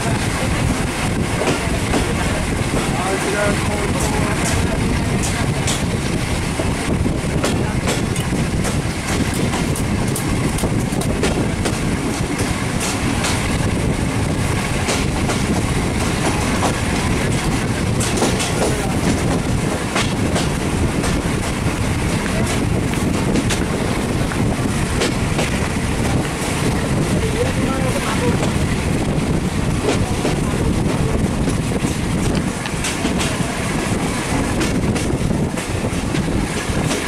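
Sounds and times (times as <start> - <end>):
train coaches rumbling: 0.0 - 37.0
wheels clicking over rail joints: 31.0 - 33.7.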